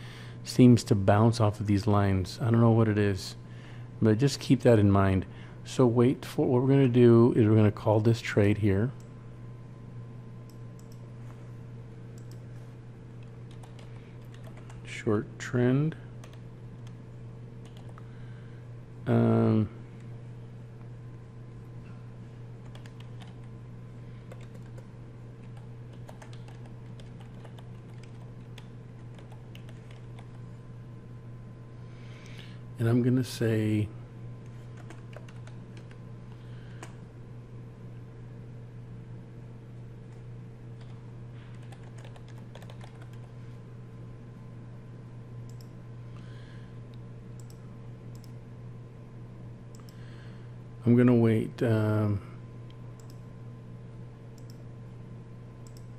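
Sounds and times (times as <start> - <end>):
steady low hum: 0.0 - 55.9
keyboard typing: 13.2 - 14.8, 22.6 - 23.5, 24.3 - 30.4, 34.7 - 36.0, 40.8 - 43.3.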